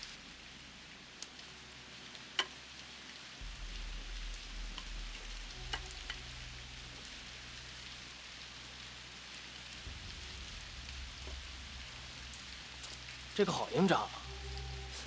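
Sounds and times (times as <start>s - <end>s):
campfire crackling: 0.0s - 15.0s
low hum: 14.1s - 15.0s.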